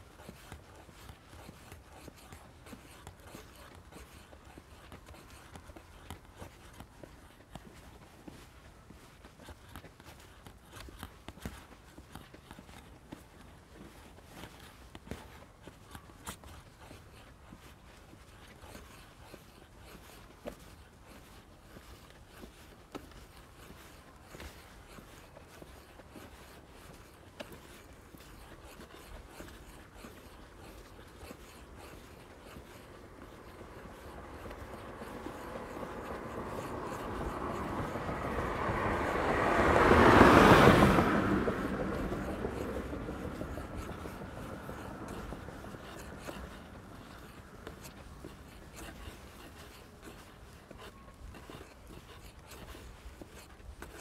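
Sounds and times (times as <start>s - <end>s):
motor vehicle passing: 22.0s - 54.0s.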